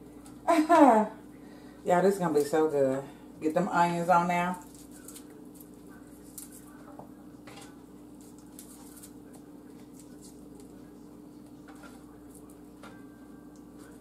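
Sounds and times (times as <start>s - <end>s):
steady low hum: 0.0s - 14.0s
onion rings rustling: 4.5s - 6.8s, 8.1s - 10.7s.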